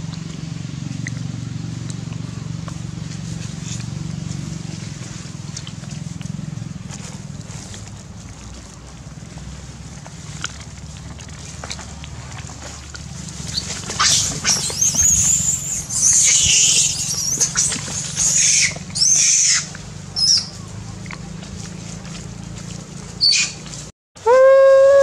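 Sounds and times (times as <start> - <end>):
monkeys screaming: 14.0 - 20.5.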